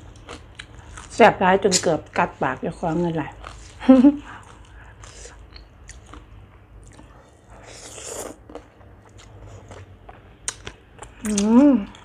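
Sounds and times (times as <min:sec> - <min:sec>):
soft chewing: 0:00.0 - 0:12.0.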